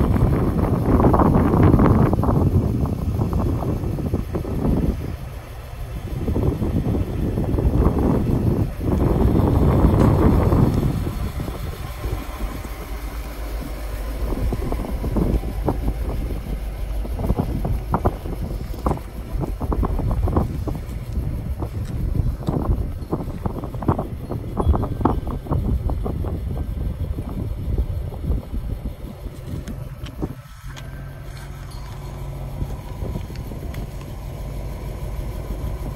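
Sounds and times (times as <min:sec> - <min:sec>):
engine idling: 0:00.0 - 0:35.9.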